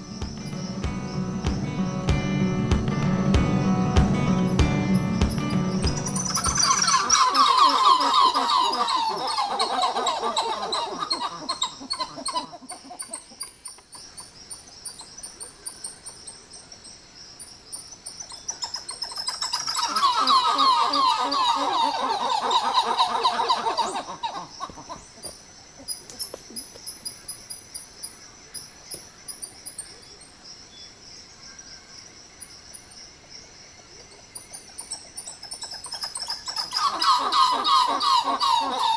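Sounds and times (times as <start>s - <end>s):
faint high chirps: 3.8s - 7.8s
high insect shrill: 4.3s - 12.5s
monkeys calling: 5.0s - 16.1s, 18.2s - 27.5s, 34.1s - 38.9s.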